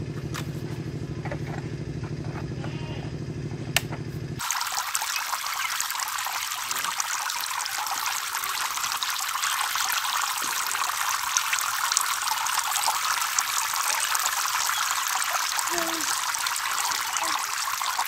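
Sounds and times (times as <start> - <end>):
fountain water splashing into tub: 4.4 - 18.0.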